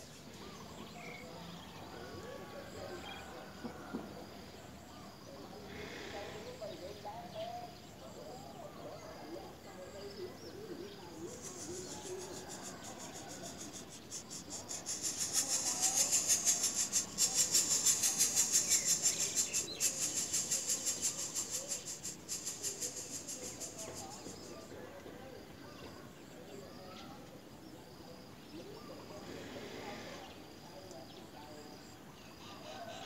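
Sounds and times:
chicks begging with rasping calls: 11.1 - 24.5.

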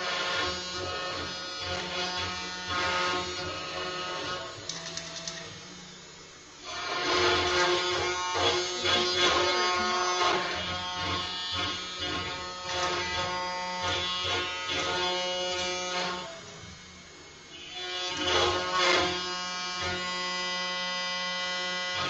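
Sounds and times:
cnc router carving wood: 0.0 - 22.0.

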